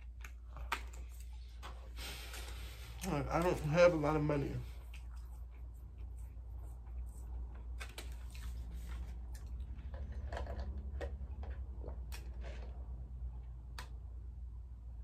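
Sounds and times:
low steady hum: 0:00.0 - 0:15.0
mouth clicks and lip smacks: 0:04.8 - 0:09.6.

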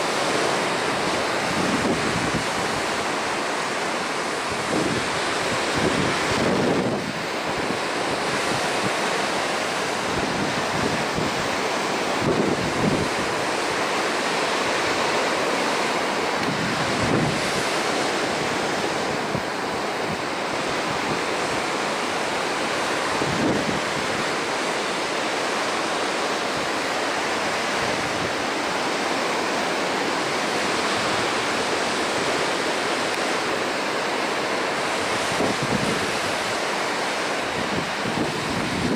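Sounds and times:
ocean surf breaking: 0:00.0 - 0:38.9
wind buffeting microphone: 0:00.7 - 0:03.4, 0:04.4 - 0:13.9, 0:16.0 - 0:24.6, 0:34.8 - 0:38.9.

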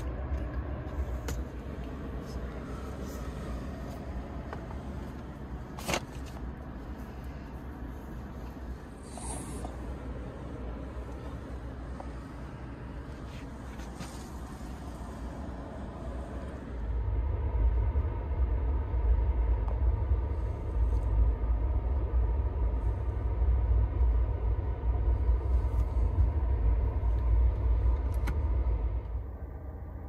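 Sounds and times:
train wheels rumbling on rails: 0:09.7 - 0:29.6.

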